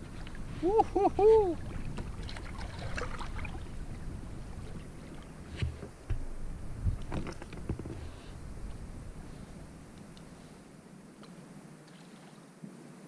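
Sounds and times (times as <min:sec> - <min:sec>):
water lapping against kayak hull: 0:00.0 - 0:10.7
low wind rumble: 0:00.0 - 0:11.8
knocks on boat: 0:05.6 - 0:06.3.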